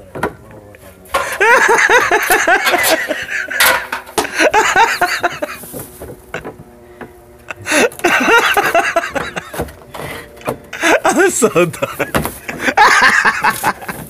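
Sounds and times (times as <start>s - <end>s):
man laughing hard: 1.2s - 6.5s, 7.5s - 9.7s, 10.7s - 14.0s.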